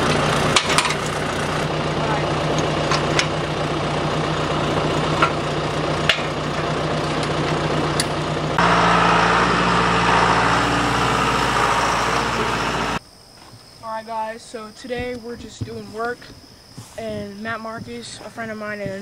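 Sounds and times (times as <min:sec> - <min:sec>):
tractor diesel engine: 0:00.0 - 0:13.0.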